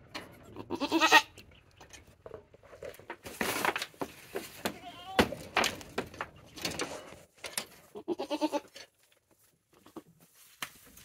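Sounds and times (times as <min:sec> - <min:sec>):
goat bleat: 0:00.5 - 0:01.3, 0:07.9 - 0:08.8
rustling: 0:01.9 - 0:11.0
hooves knocking on boards: 0:02.2 - 0:07.0.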